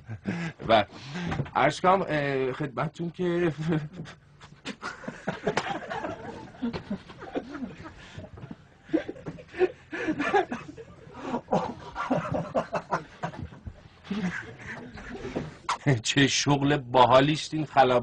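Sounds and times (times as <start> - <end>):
people laughing: 3.5 - 15.9.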